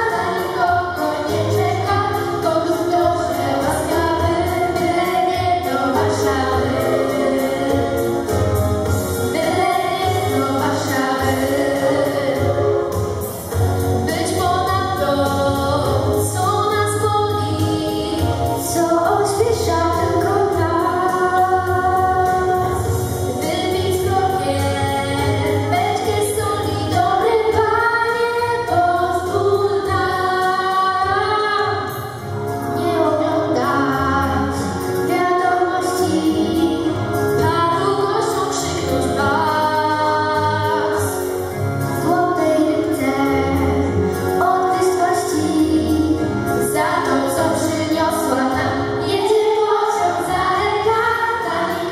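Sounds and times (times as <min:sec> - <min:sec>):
girls singing together: 0:00.0 - 0:08.2, 0:09.3 - 0:12.9, 0:42.0 - 0:51.9
backing track with steady bass: 0:00.0 - 0:51.9.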